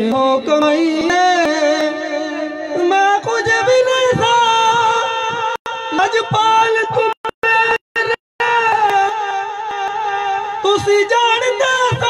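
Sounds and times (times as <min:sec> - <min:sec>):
man singing folk song into microphone: 0:00.0 - 0:09.2.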